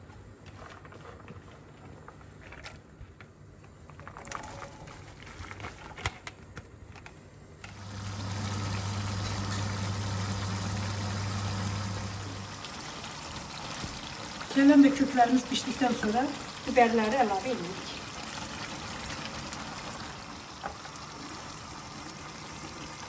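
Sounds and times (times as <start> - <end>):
steady low hum: 7.6 - 14.4
brine bubbling hiss: 7.8 - 23.0.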